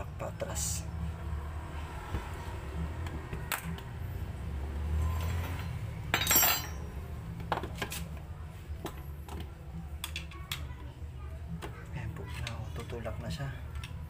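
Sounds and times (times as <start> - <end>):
metal tools clinking: 5.2 - 6.9.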